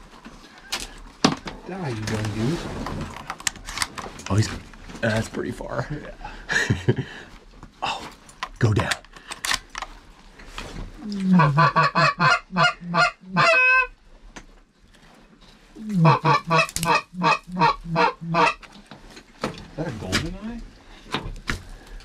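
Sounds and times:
goose honking: 11.1 - 13.9, 15.8 - 18.7.

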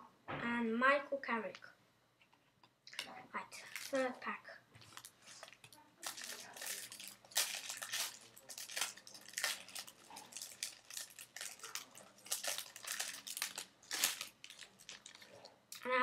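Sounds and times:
wrapper crinkling and tearing: 2.9 - 4.1, 4.8 - 15.9.

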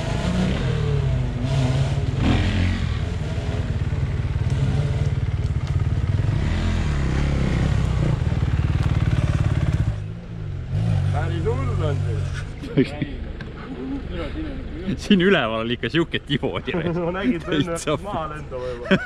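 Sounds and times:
dirt bike engine running: 0.0 - 11.3.

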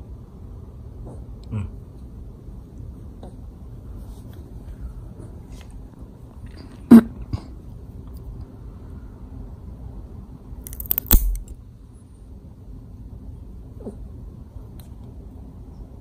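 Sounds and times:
nail clipper snipping claws: 10.7 - 11.6.

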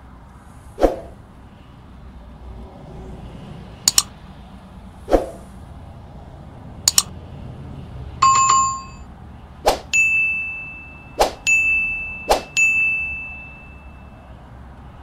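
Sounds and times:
quick paired clicks: 3.9 - 4.1, 6.9 - 7.1
bell-like chime: 8.2 - 9.1, 10.0 - 14.4.

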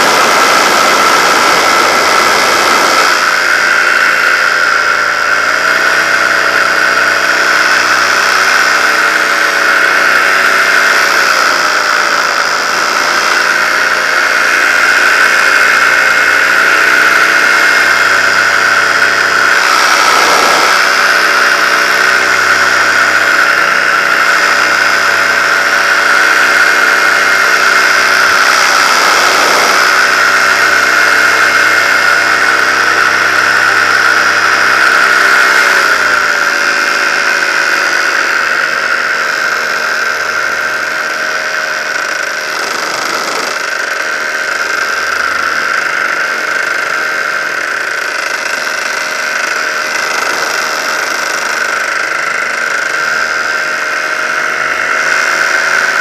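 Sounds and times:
paramotor engine whining: 0.0 - 56.0.

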